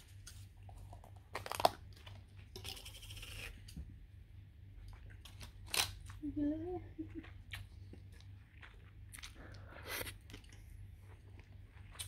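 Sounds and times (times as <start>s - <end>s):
chewing and crunching food: 0.0s - 3.7s, 6.9s - 12.0s.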